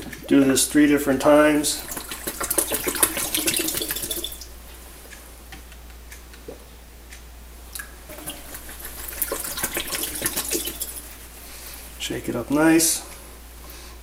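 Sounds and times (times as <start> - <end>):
water dripping: 0.0 - 5.2, 7.7 - 11.4
water splashing in a sink: 1.1 - 4.6, 7.8 - 11.4.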